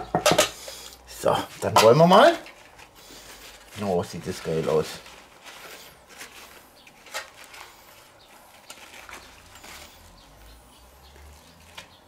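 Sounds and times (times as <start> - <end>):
paper towel rustling and crinkling: 1.2 - 10.5.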